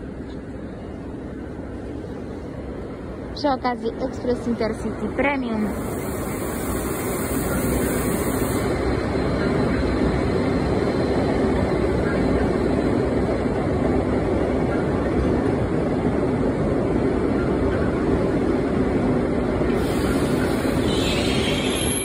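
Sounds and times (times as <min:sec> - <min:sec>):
electric trains rumbling: 0:00.0 - 0:22.0
high hiss: 0:05.7 - 0:09.1.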